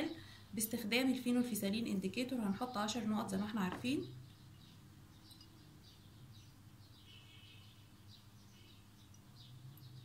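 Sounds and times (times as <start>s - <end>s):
faint bird chirps: 3.9s - 10.0s.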